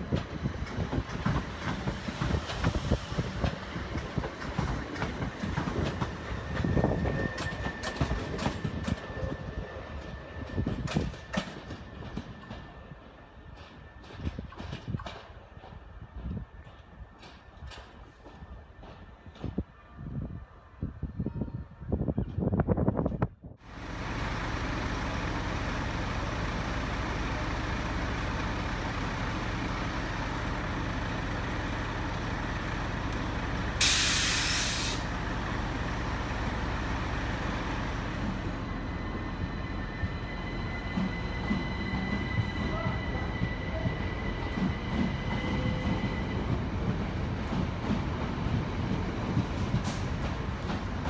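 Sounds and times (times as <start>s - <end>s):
train wheel rumble: 0.0s - 19.8s, 22.1s - 51.0s
electric train humming: 23.7s - 51.0s
air release hiss: 33.8s - 35.1s.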